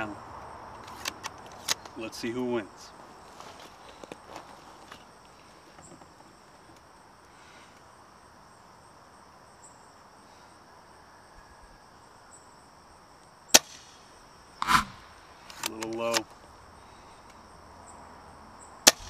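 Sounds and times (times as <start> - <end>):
insects chirring: 0.0 - 19.0
airsoft rifle shot crack: 13.5 - 14.0.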